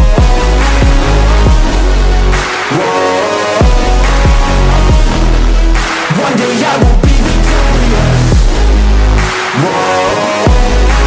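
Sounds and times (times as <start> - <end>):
sustained low bass: 0.0 - 2.4, 3.6 - 5.8, 7.0 - 9.2, 10.5 - 11.0
electronic beat with deep bass kicks: 0.0 - 11.0.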